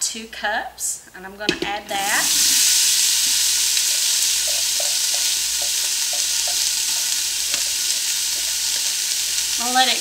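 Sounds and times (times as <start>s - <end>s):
onion sizzling in hot oil: 1.6s - 10.0s
wooden spoon stirring and scraping: 4.4s - 9.4s.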